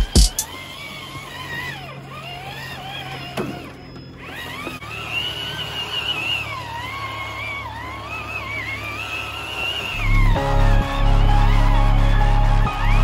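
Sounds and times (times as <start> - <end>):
background music with low notes: 0.0 - 0.4, 10.0 - 13.0
electric motor whine: 0.0 - 13.0.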